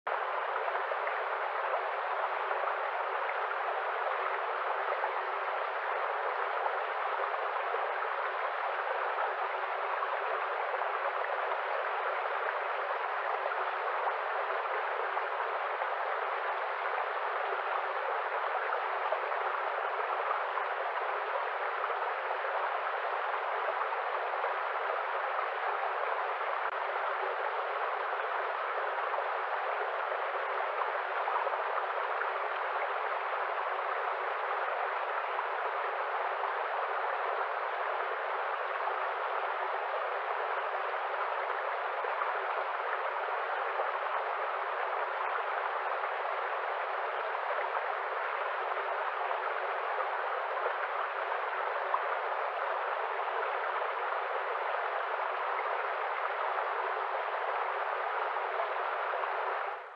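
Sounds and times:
stream running over rocks: 0:00.1 - 0:59.9.

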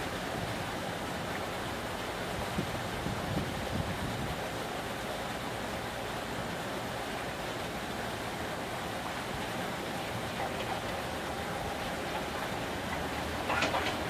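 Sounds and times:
electric train approaching: 0:09.2 - 0:14.0
faint train tone: 0:09.6 - 0:14.0.

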